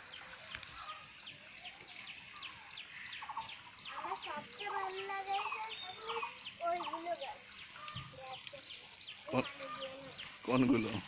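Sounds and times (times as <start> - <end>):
lower fowl calls: 0.0 - 1.3, 9.3 - 11.0
bird peeping: 0.0 - 11.0.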